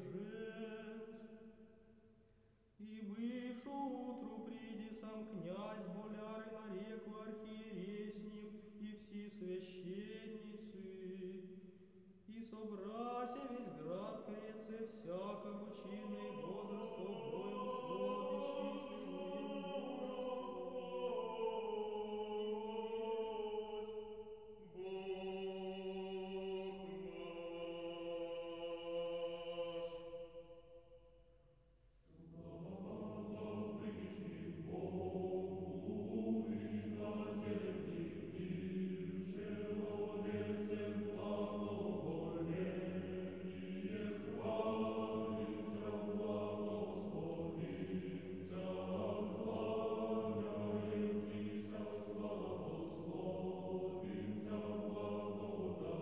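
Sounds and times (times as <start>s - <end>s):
choir chanting: 0.0s - 1.3s, 14.6s - 30.6s, 32.0s - 56.0s.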